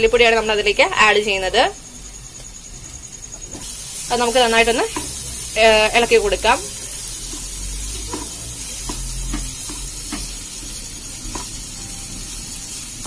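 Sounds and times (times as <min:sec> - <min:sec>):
masala sizzling: 0:00.0 - 0:13.0
spatula scraping and tapping pan: 0:04.8 - 0:11.7.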